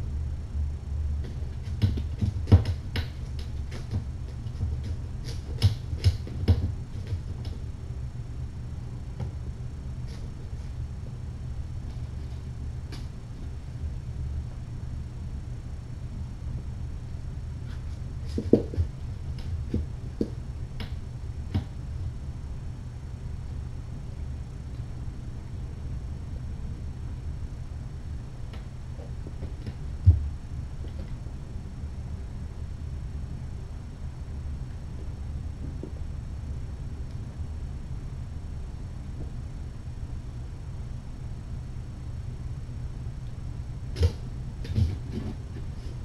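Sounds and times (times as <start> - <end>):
steady low hum: 0.0 - 46.0
kittens scrambling clicks and knocks: 1.2 - 7.6.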